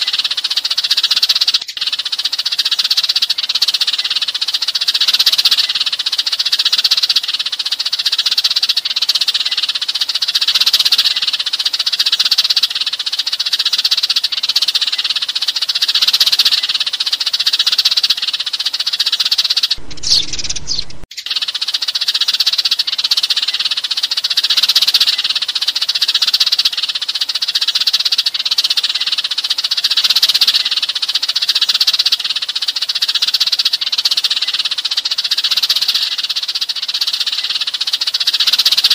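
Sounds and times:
sparrows chirping: 0:00.0 - 0:38.9
single rising bird call: 0:19.7 - 0:21.1.

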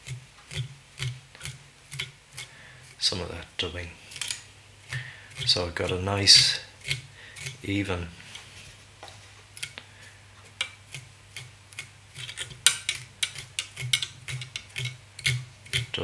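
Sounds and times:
tool ticking and scratching: 0:00.0 - 0:03.5, 0:04.1 - 0:08.0, 0:09.5 - 0:09.8, 0:10.4 - 0:16.0.

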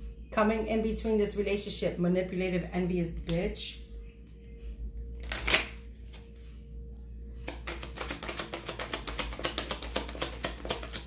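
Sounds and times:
cards being shuffled: 0:05.2 - 0:06.3, 0:07.4 - 0:11.0.

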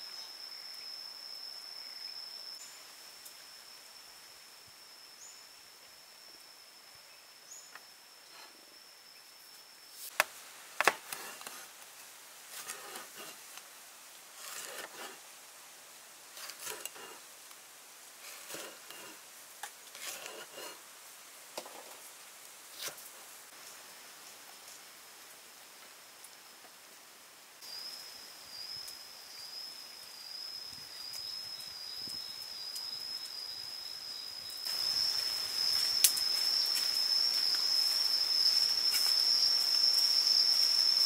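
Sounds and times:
high insect buzz: 0:00.0 - 0:21.2, 0:27.6 - 0:41.0
cleaver cutting on wooden board: 0:12.6 - 0:13.4, 0:14.4 - 0:15.2, 0:16.4 - 0:17.2, 0:18.3 - 0:19.2, 0:20.0 - 0:20.8.

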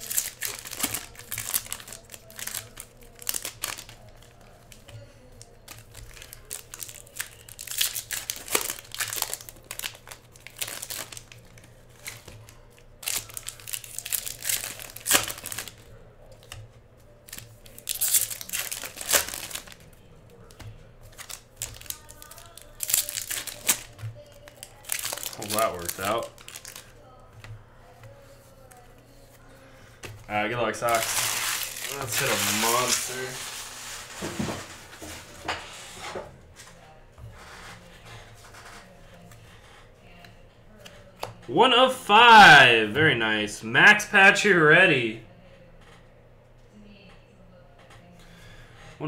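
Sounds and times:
foil wrappers crinkling and tearing: 0:00.0 - 0:16.6, 0:17.2 - 0:27.2, 0:30.7 - 0:35.4.

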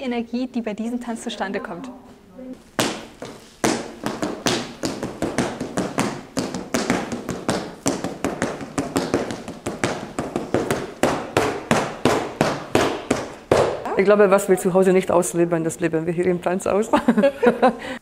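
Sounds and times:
rhythmic hand claps and slaps: 0:02.8 - 0:13.9.

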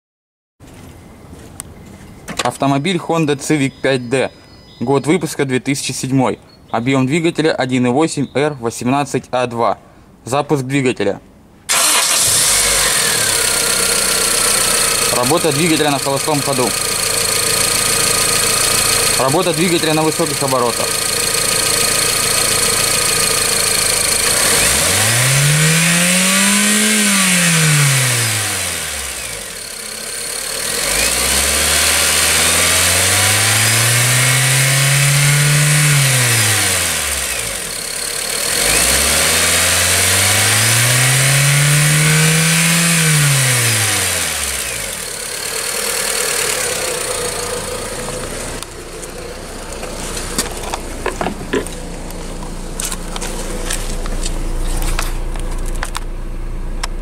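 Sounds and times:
car engine revving: 0:11.7 - 0:57.0.

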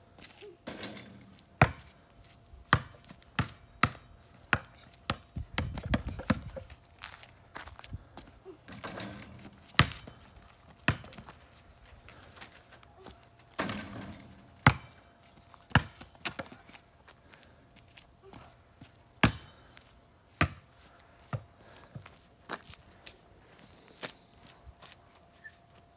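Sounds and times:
basketball bouncing on asphalt: 0:00.2 - 0:11.4, 0:13.6 - 0:15.0, 0:15.7 - 0:16.8, 0:18.3 - 0:22.6
ball thudding against garage door: 0:13.6 - 0:14.9.

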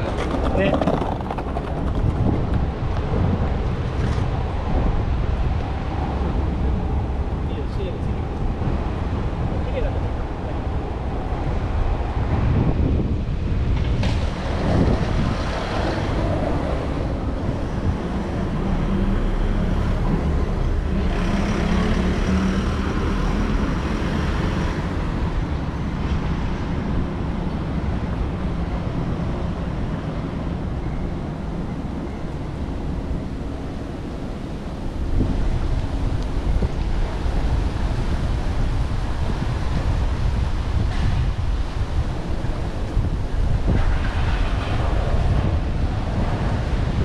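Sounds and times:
road traffic passing: 0:00.0 - 0:47.0
heavy vehicle engine hum passing: 0:13.9 - 0:30.3.

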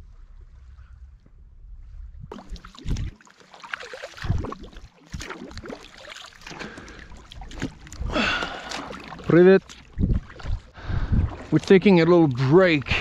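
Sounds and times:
wind rumbling on microphone: 0:00.0 - 0:03.2, 0:09.8 - 0:11.7
kayak paddle splashing water: 0:02.3 - 0:13.0
wind buffeting microphone thumps: 0:09.8 - 0:11.6.

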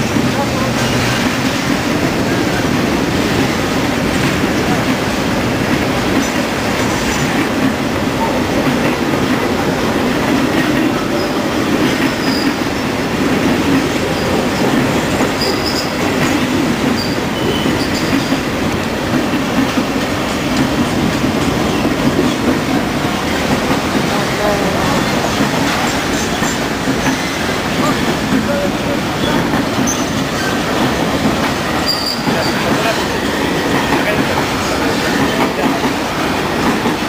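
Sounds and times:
train wheels rumbling on rails: 0:00.0 - 0:37.0
high wheel squeals: 0:12.1 - 0:12.6, 0:15.4 - 0:16.0, 0:17.0 - 0:18.3, 0:29.1 - 0:30.6, 0:31.8 - 0:33.0.

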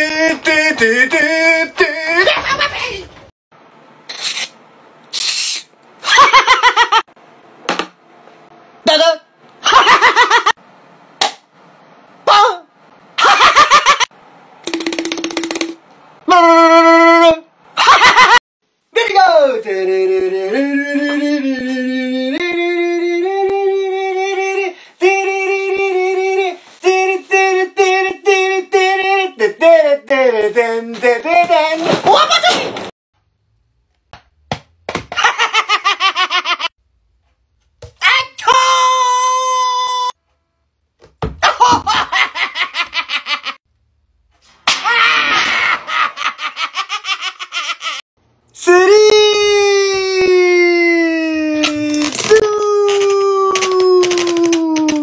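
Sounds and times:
man laughing rapidly: 0:02.0 - 0:03.1, 0:06.0 - 0:07.1, 0:09.6 - 0:10.6, 0:13.2 - 0:14.1, 0:17.8 - 0:18.4, 0:35.2 - 0:36.7, 0:41.4 - 0:43.6, 0:45.0 - 0:48.0.

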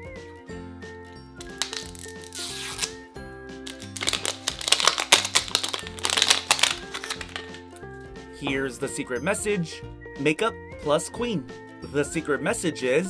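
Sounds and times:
light background music: 0:00.0 - 0:13.0
plastic crinkling: 0:01.4 - 0:02.9, 0:03.7 - 0:07.8
plastic wrapping tearing: 0:01.4 - 0:03.0, 0:03.7 - 0:07.8.

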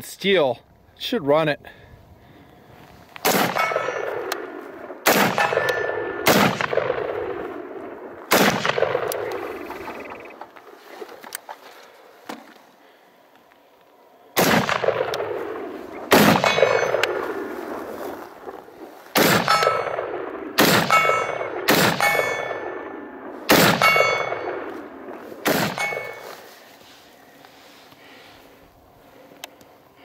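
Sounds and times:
rifle shots: 0:03.2 - 0:10.3, 0:14.4 - 0:26.5
steel target ringing: 0:03.4 - 0:04.3, 0:05.3 - 0:06.9, 0:16.2 - 0:17.2, 0:19.4 - 0:20.2, 0:20.8 - 0:22.9, 0:23.6 - 0:24.7, 0:25.5 - 0:26.4.

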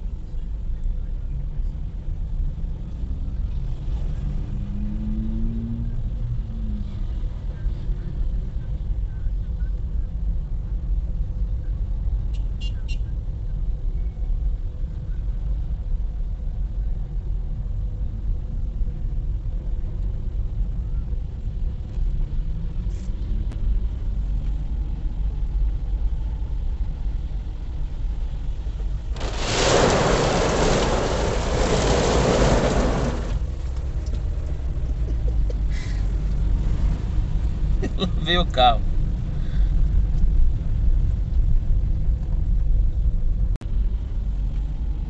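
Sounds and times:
water spray pelting a car: 0:29.1 - 0:34.2.

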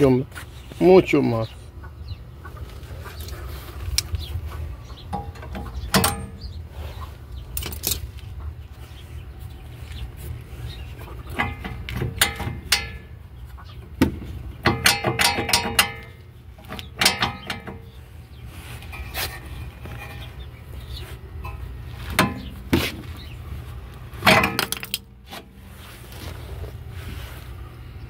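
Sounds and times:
steady low hum: 0:00.0 - 0:28.0
brake caliper metal clanks: 0:05.0 - 0:06.6, 0:11.2 - 0:18.0, 0:18.8 - 0:23.3, 0:24.2 - 0:25.6.

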